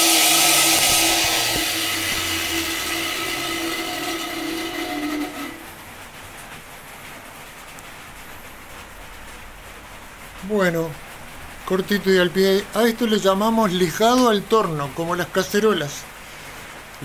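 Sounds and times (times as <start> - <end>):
electric drill motor whine: 0.0 - 5.8
airy rush of spinning plate: 0.0 - 6.2
faint steady hiss: 0.0 - 17.0.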